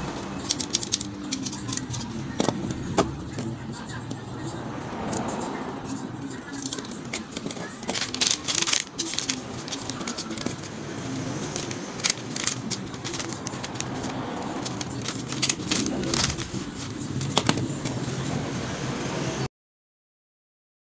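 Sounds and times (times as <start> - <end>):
paper rustling: 0.1 - 3.5, 6.4 - 18.2.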